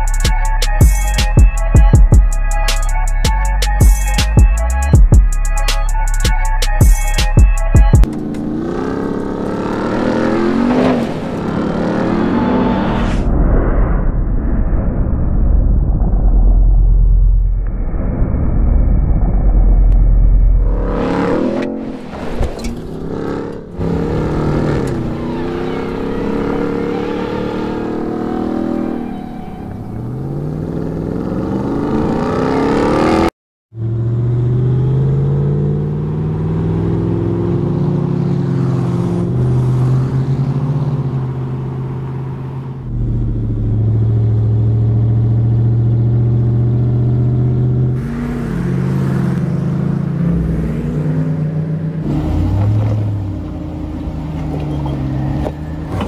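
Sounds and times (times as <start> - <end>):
truck engine revving: 7.2 - 13.0, 19.8 - 56.0.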